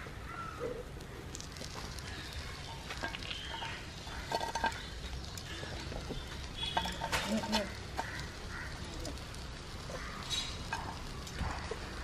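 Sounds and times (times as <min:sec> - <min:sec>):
food sizzling on griddle: 0:01.2 - 0:12.0.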